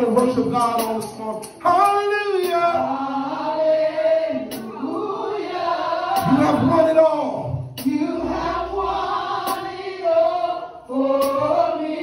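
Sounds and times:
man singing into a microphone: 6.2 - 7.6.

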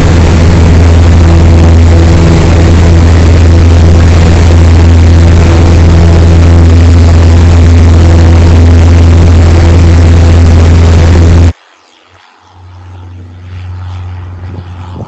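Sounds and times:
aircraft engine droning at full power: 0.0 - 15.0.

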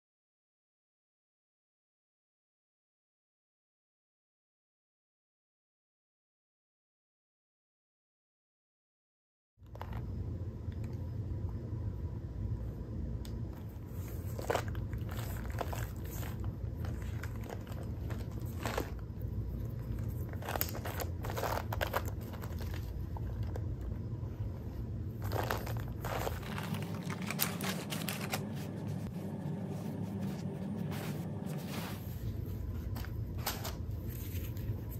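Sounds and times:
steady low hum: 9.6 - 34.9
packaging crinkling and rustling: 13.9 - 23.6, 25.2 - 29.1, 30.9 - 34.9.

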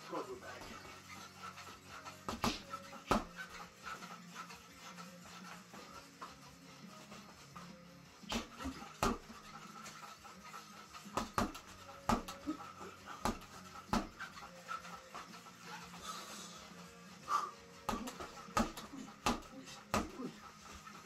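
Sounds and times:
gloved punches on reflex bag: 2.3 - 3.3, 8.3 - 9.4, 11.1 - 12.4, 13.2 - 14.2, 17.8 - 20.3.

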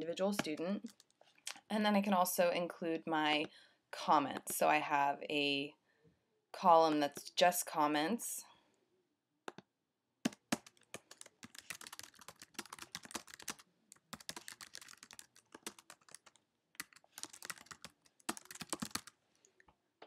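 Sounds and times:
typing on computer keyboard: 10.3 - 19.2.

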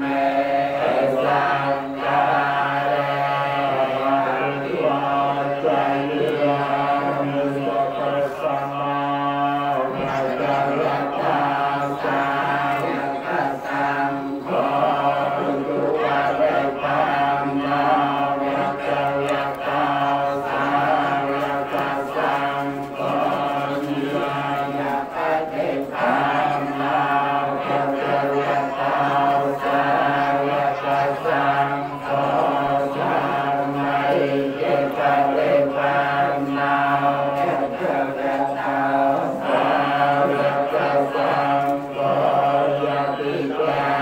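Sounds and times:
voices chanting prayers: 0.0 - 44.0.

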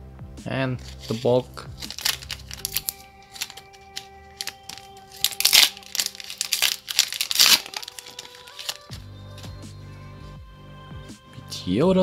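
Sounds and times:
background music: 0.0 - 12.0
wrapper crinkling and rustling: 0.8 - 9.0.

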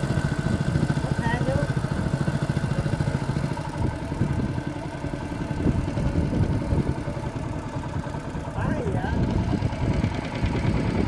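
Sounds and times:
boat engine chugging: 0.0 - 11.0.

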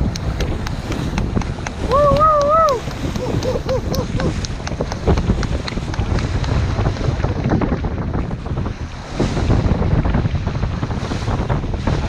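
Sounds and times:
waves slapping boat hull: 0.0 - 12.0
wind buffeting microphone: 0.0 - 12.0.

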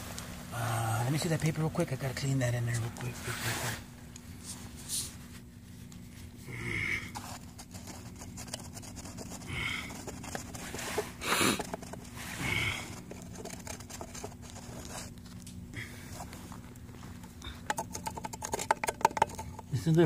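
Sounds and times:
paper towel rustling and scraping: 2.7 - 6.4, 10.1 - 12.4, 13.0 - 15.3.

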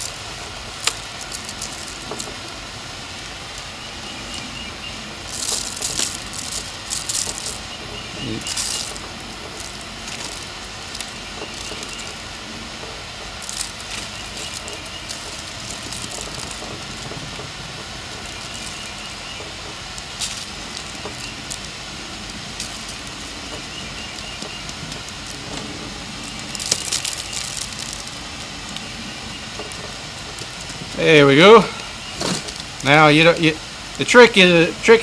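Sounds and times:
background hum: 0.0 - 35.0
gritty sugar rustles: 0.0 - 35.0.

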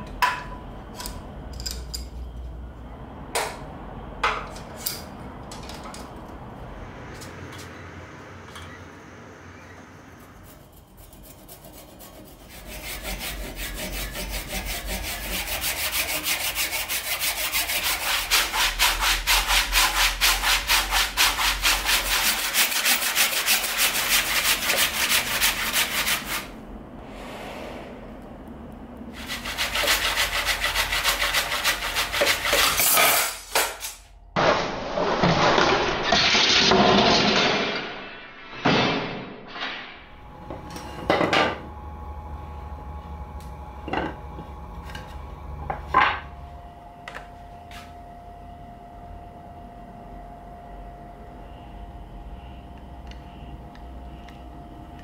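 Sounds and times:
hand saw cutting wood: 11.0 - 26.5, 29.2 - 33.8.

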